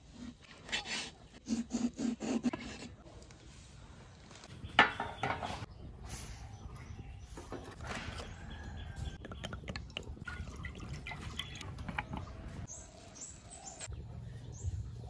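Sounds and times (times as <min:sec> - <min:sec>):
faint birds chirping: 0:03.2 - 0:15.0.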